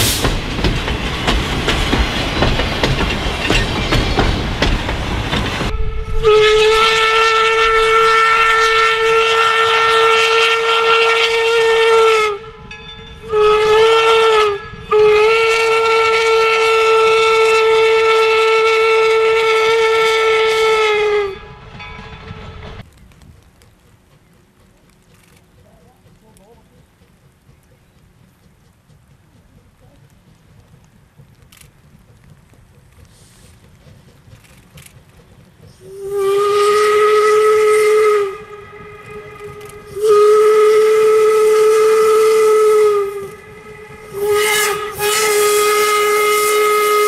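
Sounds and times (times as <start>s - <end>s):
train wheels clattering over rail joints: 0.0s - 5.8s, 21.6s - 47.0s
steam locomotive whistle: 5.7s - 21.7s, 35.8s - 47.0s.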